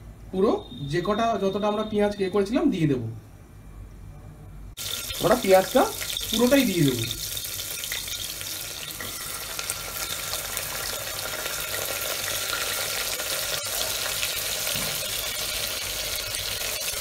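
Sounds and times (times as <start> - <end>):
onions sizzling in oil: 4.8 - 17.0.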